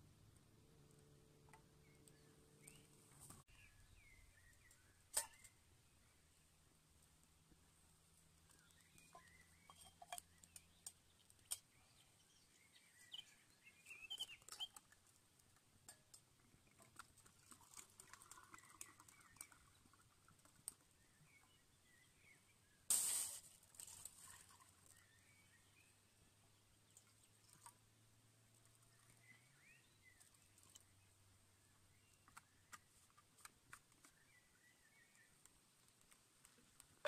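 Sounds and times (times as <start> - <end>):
birds chirping faintly: 0.4 - 22.9, 24.2 - 37.0
metal cups clinking: 9.1 - 11.6
short hiss: 22.9 - 23.6.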